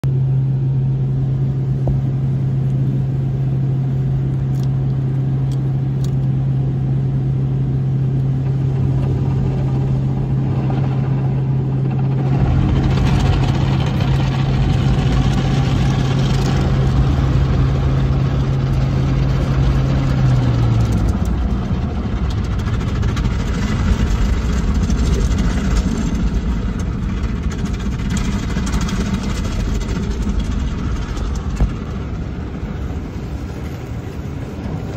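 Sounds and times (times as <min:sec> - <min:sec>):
car wash machinery hum: 0:00.0 - 0:34.9
water spraying on car body: 0:12.2 - 0:34.9.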